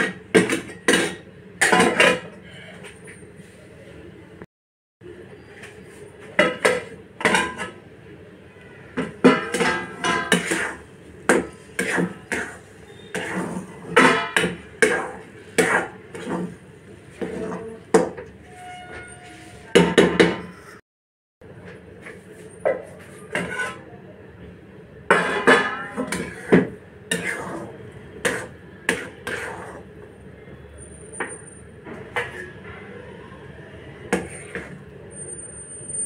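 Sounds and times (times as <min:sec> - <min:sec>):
metal spatula scraping a metal pan: 0:09.0 - 0:20.8, 0:23.0 - 0:23.9, 0:25.1 - 0:29.9, 0:31.3 - 0:32.6, 0:34.1 - 0:35.5.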